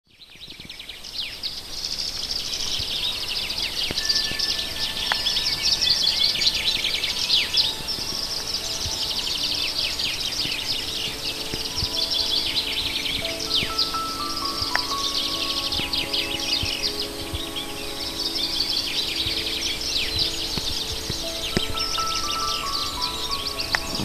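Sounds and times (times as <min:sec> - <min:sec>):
chorus of birds chirping: 0:00.2 - 0:24.0.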